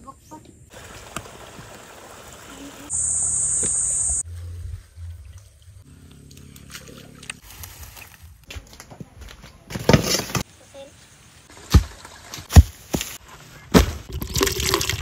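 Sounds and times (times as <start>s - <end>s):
high-pitched buzz: 2.9s - 4.2s.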